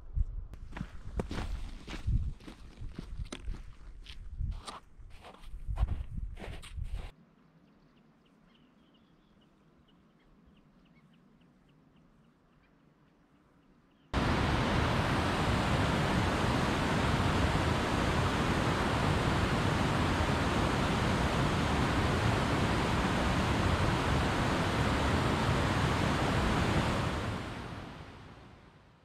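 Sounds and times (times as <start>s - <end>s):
stream water rushing: 14.2s - 28.5s.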